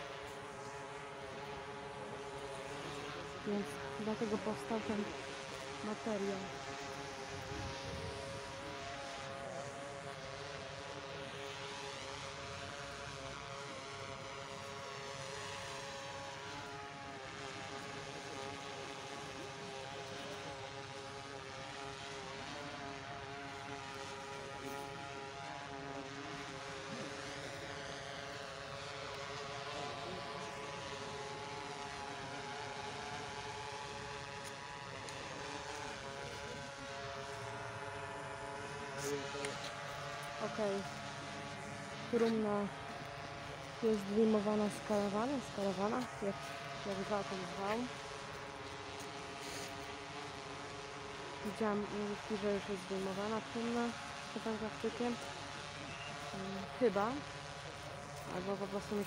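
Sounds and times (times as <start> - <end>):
propeller aircraft drone: 0.0 - 59.0.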